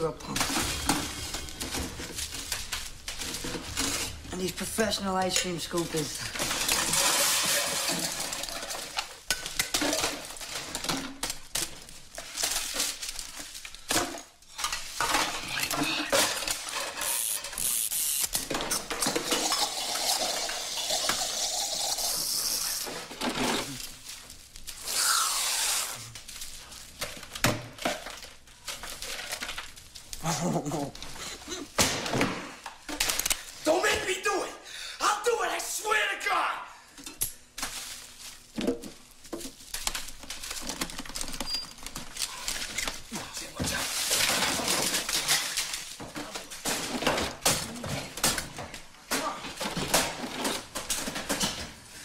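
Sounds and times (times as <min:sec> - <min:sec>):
metal utensils clinking: 0:00.3 - 0:10.4, 0:19.0 - 0:21.9
hissing spray: 0:20.6 - 0:22.9, 0:24.9 - 0:26.1.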